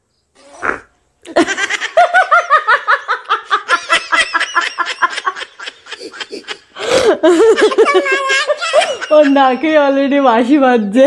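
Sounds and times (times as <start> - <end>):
man and woman laughing: 1.3 - 9.8.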